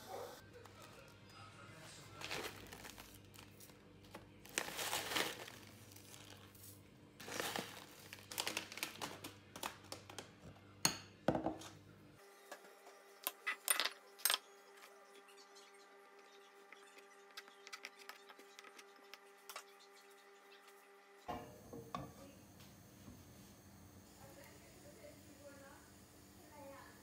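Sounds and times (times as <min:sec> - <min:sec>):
plastic packet rustling: 0:02.1 - 0:10.2.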